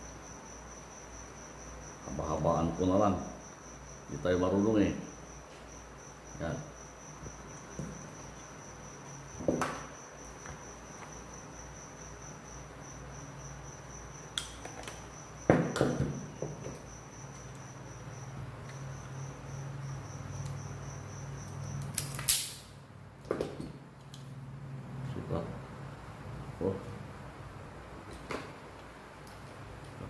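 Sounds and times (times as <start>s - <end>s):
cricket trilling: 0.0s - 23.2s
wire strippers snapping: 21.8s - 22.7s.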